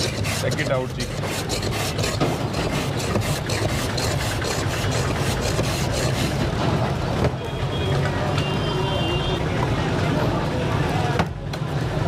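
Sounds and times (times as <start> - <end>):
ice block scraping on blade: 0.0 - 6.5.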